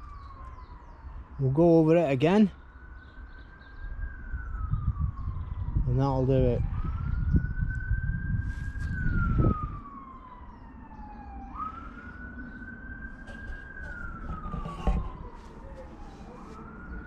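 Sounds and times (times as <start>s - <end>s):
emergency siren wailing: 0.0s - 17.0s
low microphone rumble: 6.6s - 10.2s.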